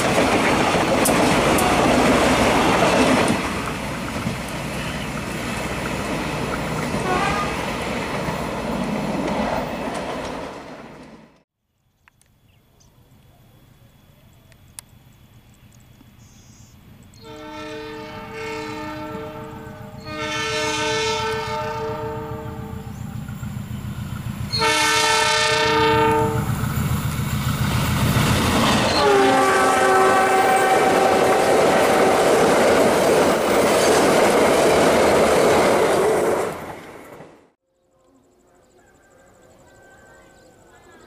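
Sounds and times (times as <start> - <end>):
rush and rumble of passing wagons: 0.0 - 11.4
locomotive air horn blasts: 6.9 - 7.7, 17.2 - 22.9, 24.5 - 26.5, 28.9 - 32.2.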